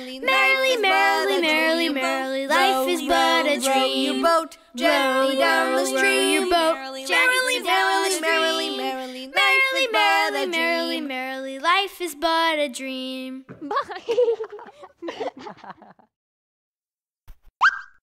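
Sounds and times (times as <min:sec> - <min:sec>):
child and woman singing: 0:00.0 - 0:13.7.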